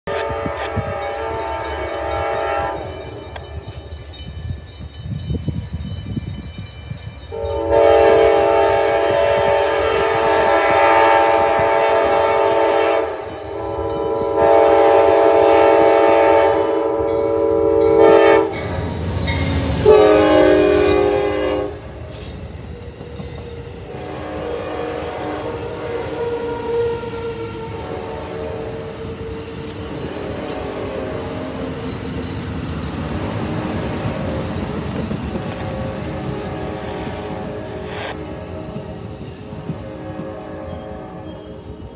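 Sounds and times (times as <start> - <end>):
train horn blasts: 0.0 - 3.7, 7.3 - 19.0, 19.6 - 22.0, 23.8 - 32.2, 34.4 - 41.7
locomotive rumbling past: 0.1 - 41.9
passenger cars rolling by: 21.8 - 41.9.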